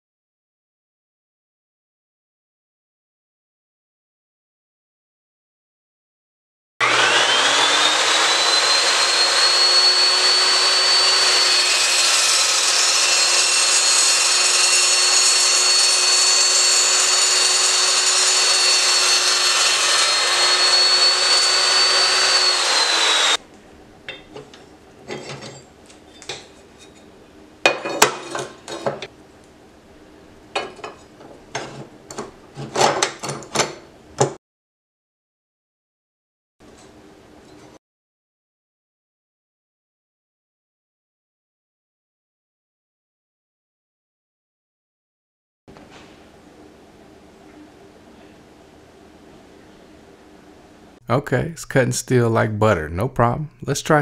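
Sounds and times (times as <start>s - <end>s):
chop saw whining through steel: 6.8s - 23.4s
knocks and clicks of steel handling: 24.1s - 27.1s, 30.6s - 34.4s.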